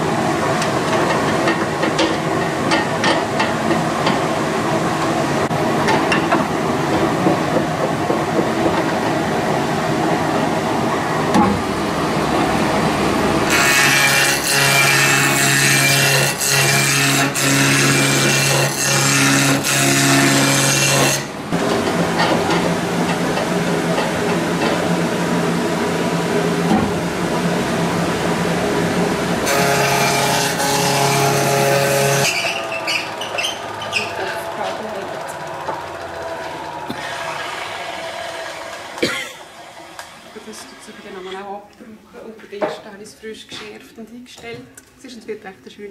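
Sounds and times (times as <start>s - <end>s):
wood lathe running: 11.8s - 25.4s, 26.1s - 41.3s.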